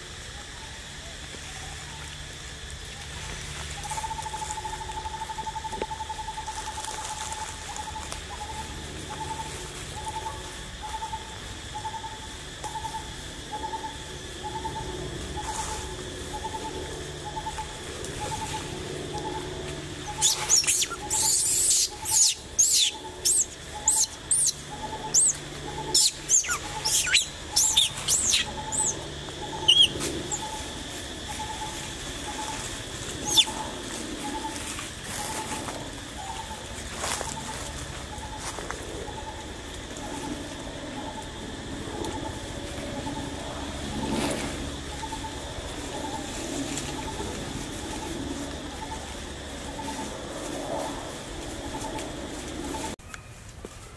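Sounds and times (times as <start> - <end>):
sharp high bird chirps: 20.1 - 30.6, 33.2 - 33.5.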